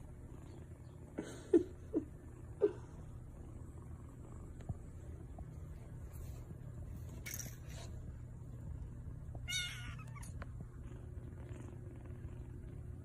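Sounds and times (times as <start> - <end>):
low steady hum: 0.0 - 13.0
kitten mewing: 9.5 - 10.4.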